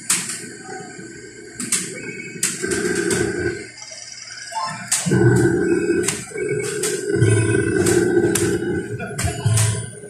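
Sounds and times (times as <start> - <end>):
electronic game music: 4.5 - 10.0.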